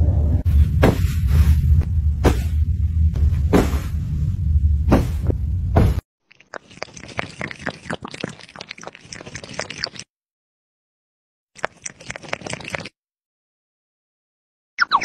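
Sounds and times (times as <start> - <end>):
loud low rumble: 0.0 - 6.0
sharp thumps: 0.6 - 4.1, 4.8 - 6.0
kitten lapping water: 6.3 - 10.1, 11.6 - 13.0.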